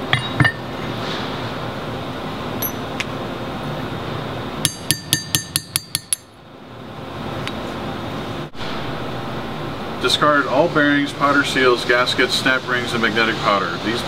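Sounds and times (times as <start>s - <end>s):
ringing metal clinks: 2.6s - 2.9s
hammer striking metal punch: 2.6s - 3.0s, 4.6s - 6.4s.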